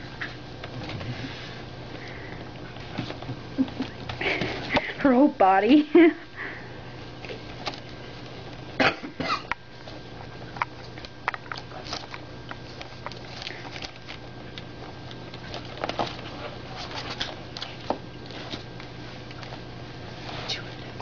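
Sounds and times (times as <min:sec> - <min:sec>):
steady low hum: 0:00.0 - 0:21.0
puppies scuffling on a blanket: 0:11.7 - 0:21.0.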